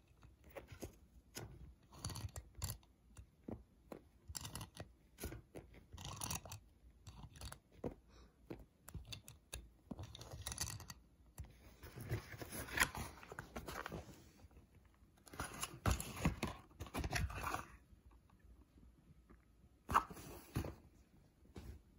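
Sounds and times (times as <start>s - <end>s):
toy car clicks and scrapes: 1.8s - 2.9s, 4.3s - 7.6s, 8.9s - 11.0s
cardboard packaging rustling: 11.7s - 14.4s.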